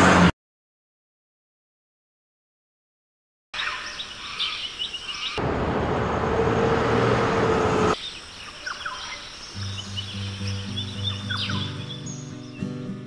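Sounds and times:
birds chirping: 3.6 - 13.0
low hum: 5.4 - 8.0
road noise inside moving car: 5.4 - 8.0.

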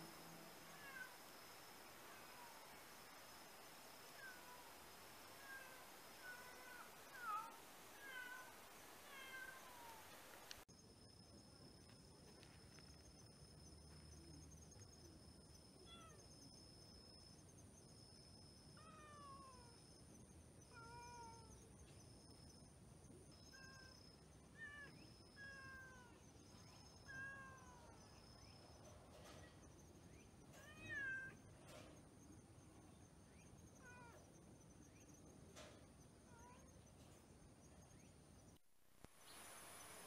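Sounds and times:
pulsing insect chirp: 0.0 - 40.0
cat meowing faintly: 0.6 - 1.3, 5.4 - 10.1, 27.0 - 28.0, 33.8 - 34.3.

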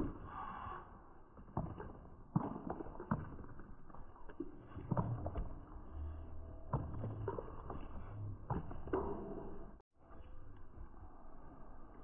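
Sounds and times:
low hum: 4.0 - 12.0.

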